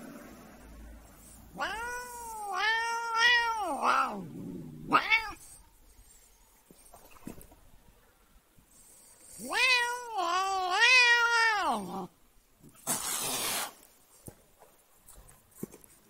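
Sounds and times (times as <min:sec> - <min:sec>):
cat meowing: 0:01.5 - 0:05.6, 0:09.2 - 0:12.1.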